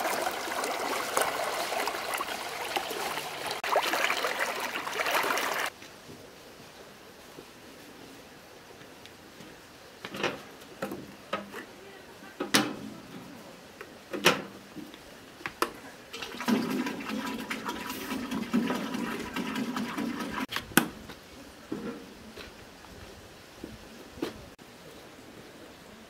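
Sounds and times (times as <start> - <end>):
liquid pouring: 0.0 - 5.7, 16.1 - 20.5.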